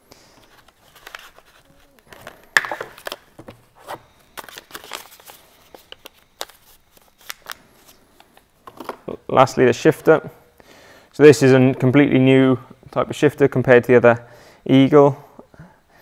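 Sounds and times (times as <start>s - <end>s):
cardboard packaging rustling: 0.2s - 8.0s.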